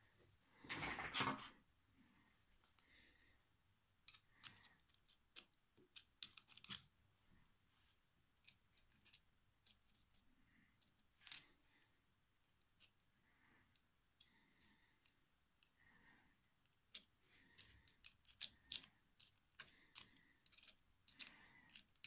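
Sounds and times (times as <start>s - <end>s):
small metal parts clicking: 4.0s - 6.9s, 16.6s - 22.0s.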